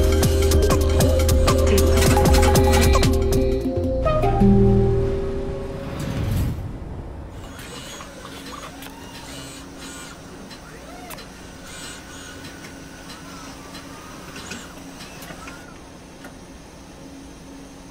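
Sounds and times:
steady machine hum: 0.0 - 17.9
electric motors whining: 7.4 - 17.9.

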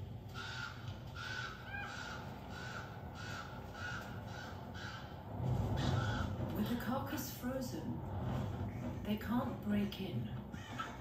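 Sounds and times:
crows cawing: 0.3 - 6.4, 10.5 - 11.0.

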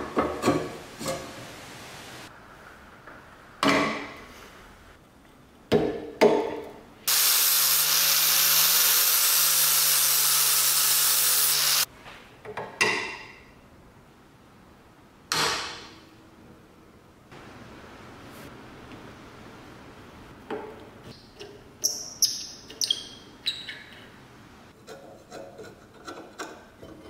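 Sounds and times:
angle grinder cutting metal: 7.1 - 11.9.

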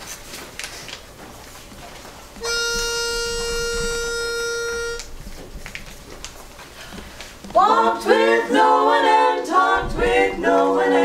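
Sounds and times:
pitch pipe note: 2.4 - 5.1.

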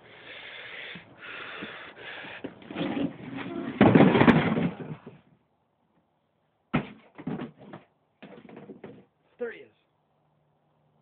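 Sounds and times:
floor grate rustling and scraping: 1.5 - 5.3, 6.8 - 9.1.

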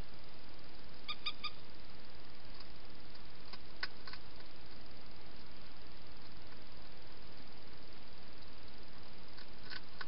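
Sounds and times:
steady hiss: 0.0 - 10.0
sharp clicks: 9.4 - 10.0.

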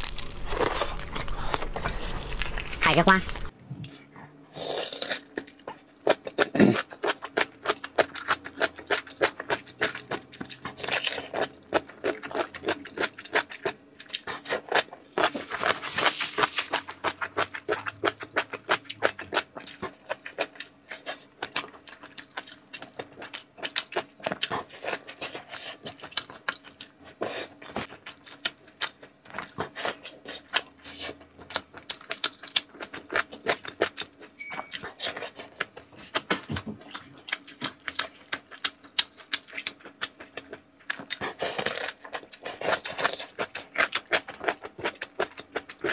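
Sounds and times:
person chewing food: 0.0 - 45.9.

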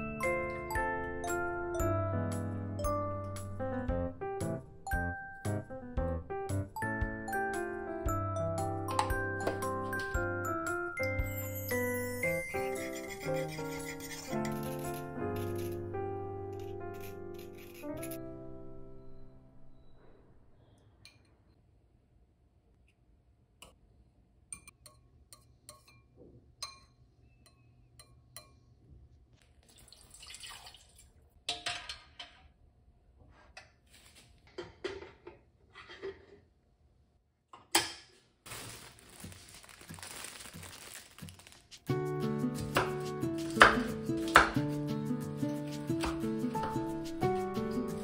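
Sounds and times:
background music: 0.0 - 19.6, 41.8 - 48.0
utensils and bowls clinking: 8.9 - 15.8
water pouring into pot: 29.6 - 31.2.

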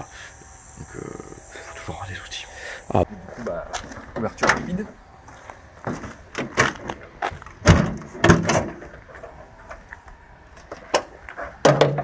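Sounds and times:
car bonnet clunks and knocks: 7.6 - 9.0, 11.0 - 12.0.

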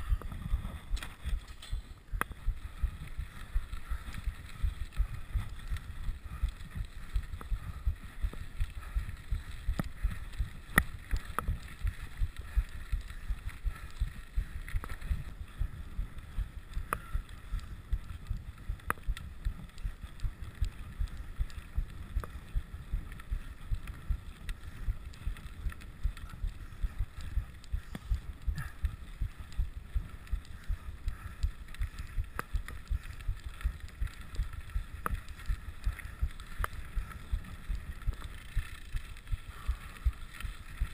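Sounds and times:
wind on microphone: 0.0 - 38.6
bike rolling over gravel: 0.0 - 40.9.

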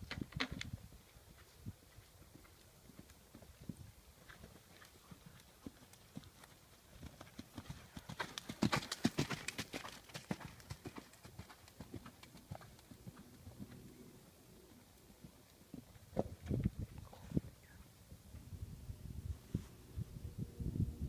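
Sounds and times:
horse hoofbeats on sand: 1.3 - 13.9.

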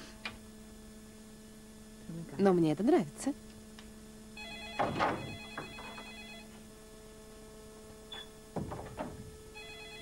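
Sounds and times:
steady low hum: 0.0 - 10.0
telephone electronic trilling ring: 4.4 - 6.5, 9.6 - 10.0.

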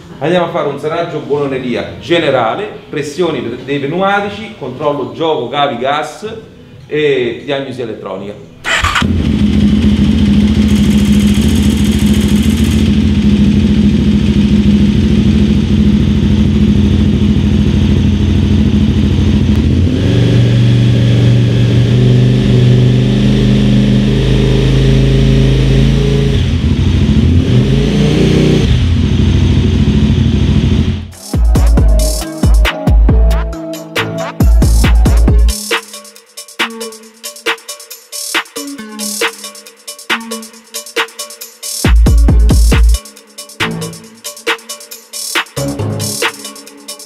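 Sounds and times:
motorcycle engine revving: 8.6 - 32.0.

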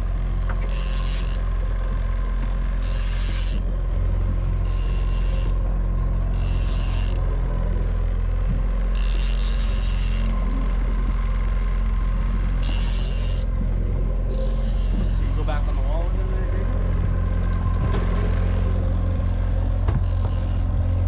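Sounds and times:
boat engine drone: 0.0 - 21.0
fishing reel cranking: 0.6 - 1.5, 2.7 - 3.7, 4.6 - 7.4, 8.7 - 11.6, 12.2 - 13.5, 14.2 - 15.7, 17.4 - 18.9, 20.0 - 21.0.

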